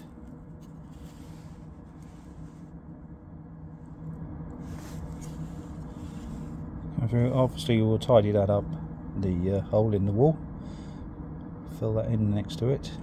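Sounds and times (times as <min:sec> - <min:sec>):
air heater exhaust humming: 0:00.0 - 0:13.0.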